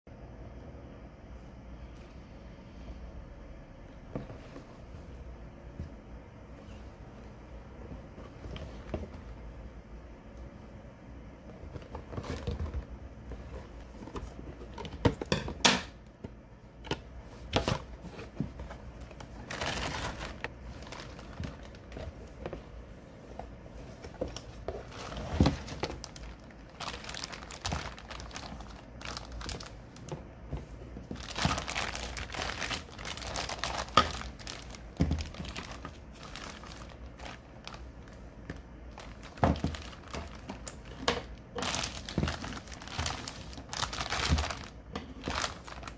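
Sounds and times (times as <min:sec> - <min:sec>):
plastic bags crinkling: 0:17.4 - 0:22.6, 0:23.9 - 0:45.9.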